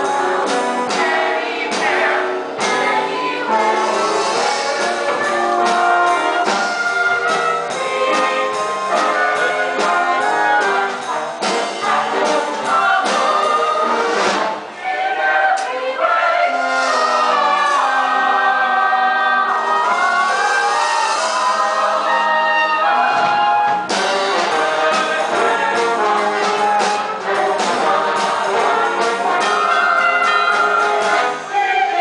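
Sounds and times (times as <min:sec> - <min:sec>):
brass playing a dance tune: 0:19.4 - 0:32.0.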